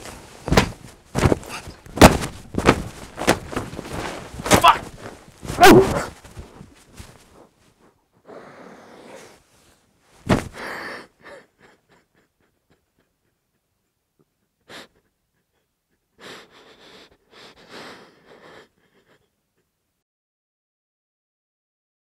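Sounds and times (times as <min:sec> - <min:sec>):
person breathing hard and gasping: 0:00.0 - 0:02.0, 0:02.6 - 0:06.6, 0:10.3 - 0:12.3, 0:14.5 - 0:19.7.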